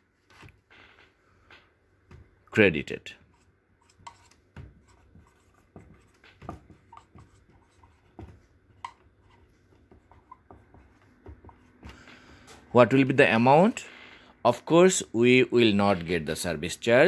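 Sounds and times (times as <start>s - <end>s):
marker scratching on whiteboard: 3.2s - 12.0s.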